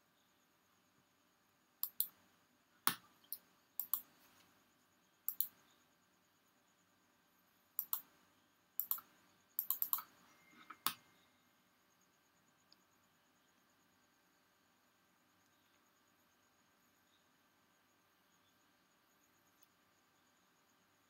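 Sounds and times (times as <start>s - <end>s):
computer mouse clicking: 1.8s - 2.2s, 2.8s - 4.5s, 5.3s - 5.6s, 7.8s - 8.2s, 8.8s - 11.1s.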